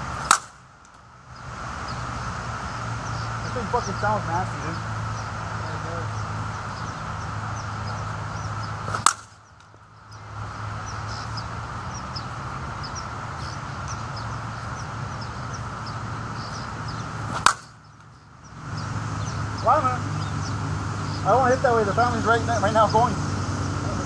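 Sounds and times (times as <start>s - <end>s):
low hum: 0.0s - 24.0s
small birds chirping: 0.0s - 24.0s
bat hitting softball: 0.2s - 1.0s, 8.7s - 9.8s, 17.3s - 18.1s.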